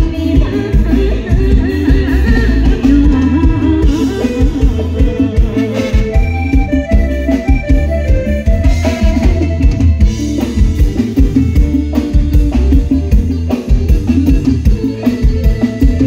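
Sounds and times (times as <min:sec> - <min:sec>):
drum kit beat: 0:00.0 - 0:16.0
electric bass: 0:00.0 - 0:16.0
electric guitar: 0:00.0 - 0:16.0
keyboard: 0:00.0 - 0:16.0.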